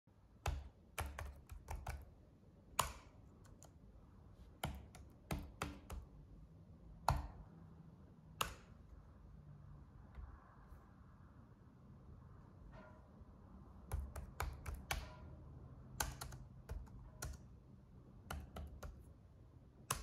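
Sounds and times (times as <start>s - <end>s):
sharp clicks and taps: 8.4s - 8.8s, 13.8s - 15.2s, 18.2s - 19.1s.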